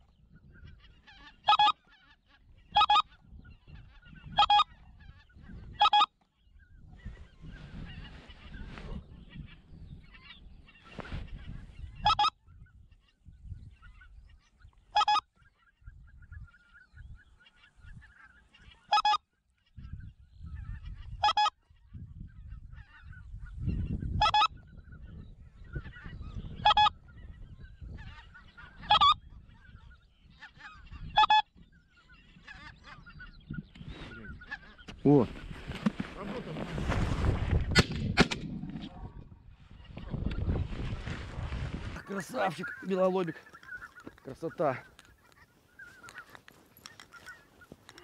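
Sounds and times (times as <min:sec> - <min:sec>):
faint goose calls: 0:00.0 - 0:37.0, 0:38.6 - 0:48.0
goose honking: 0:00.6 - 0:06.1, 0:10.1 - 0:12.4, 0:14.9 - 0:15.7, 0:16.6 - 0:19.2, 0:20.6 - 0:21.6, 0:24.1 - 0:24.6, 0:25.8 - 0:27.2, 0:27.8 - 0:36.7, 0:41.9 - 0:48.0.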